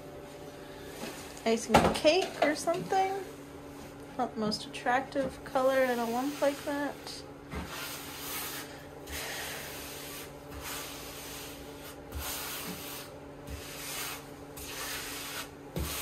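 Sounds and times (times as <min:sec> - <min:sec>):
grout float scraping tiles: 0:05.4 - 0:16.0.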